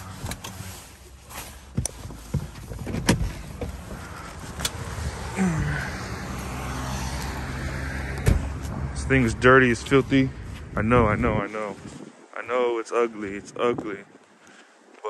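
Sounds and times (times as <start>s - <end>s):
car engine idling: 0.0s - 10.4s
car door clicks and knocks: 1.8s - 3.8s.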